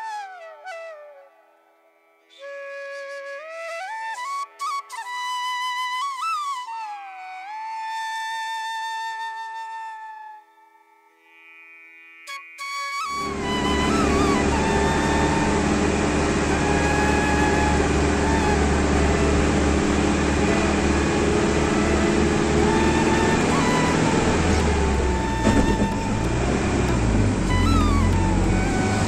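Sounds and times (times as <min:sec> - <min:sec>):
bus engine and road noise: 0:13.2 - 0:29.0
brief knocks: 0:25.4 - 0:26.4.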